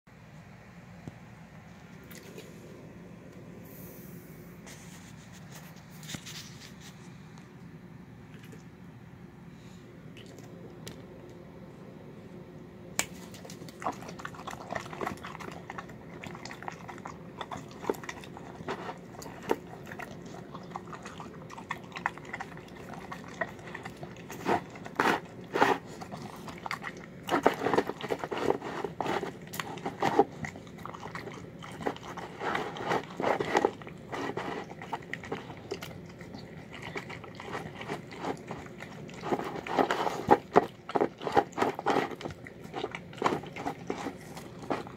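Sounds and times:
dog chewing wetly: 0:13.2 - 0:44.9.

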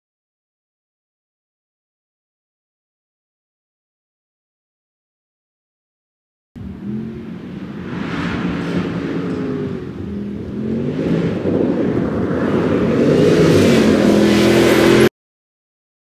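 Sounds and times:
engine revving off-road: 0:06.6 - 0:15.1.

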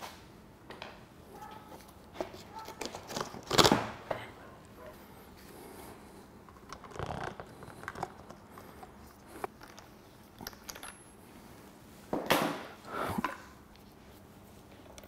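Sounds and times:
metal tools clinking: 0:09.6 - 0:11.1.

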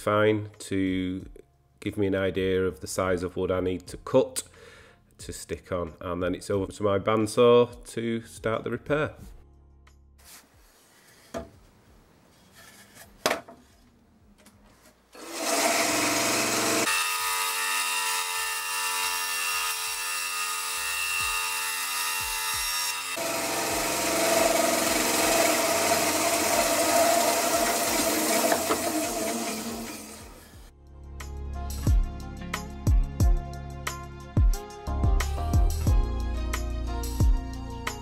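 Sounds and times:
bandsaw cutting wood: 0:15.1 - 0:30.7.

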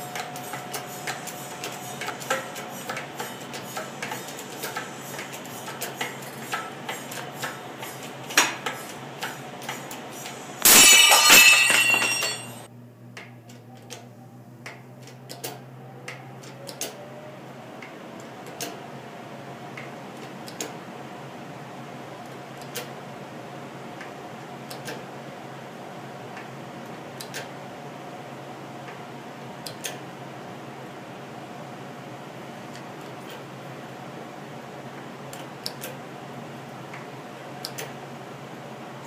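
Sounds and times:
saw blade shattering with loud crack: 0:10.6 - 0:12.7
steel pieces clattering: 0:10.6 - 0:12.7.

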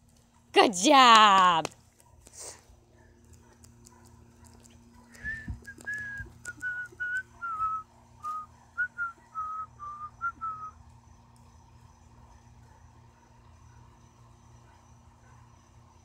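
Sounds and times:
person whistling: 0:05.2 - 0:10.8.

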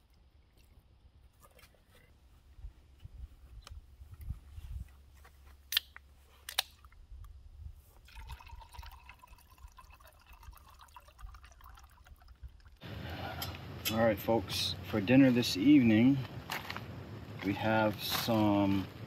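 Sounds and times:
liquid pouring into container: 0:08.0 - 0:12.8.

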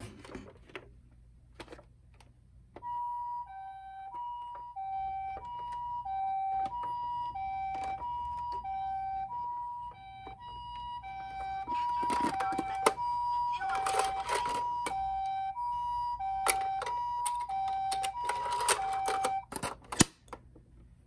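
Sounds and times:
toy two-tone siren: 0:02.8 - 0:19.5.

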